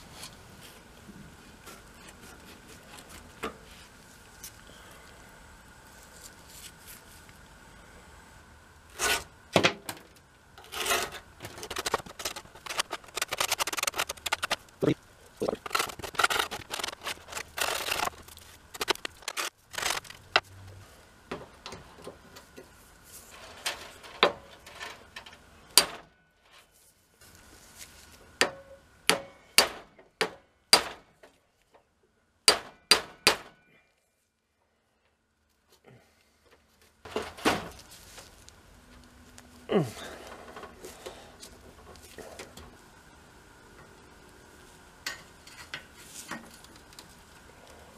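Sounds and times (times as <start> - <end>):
metal parts clanking and scraping: 10.6 - 14.7, 15.4 - 20.4, 23.2 - 26.7.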